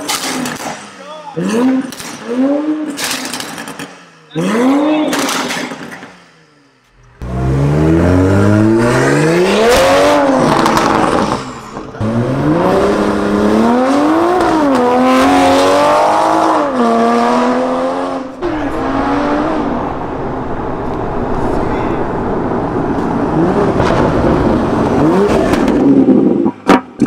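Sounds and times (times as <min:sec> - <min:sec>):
car engine accelerating hard: 0:07.0 - 0:26.5.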